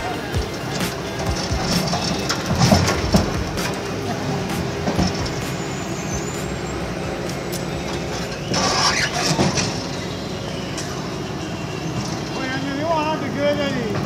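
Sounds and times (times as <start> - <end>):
loud rushing burst: 0.0 - 10.2
diesel engine running: 0.0 - 14.0.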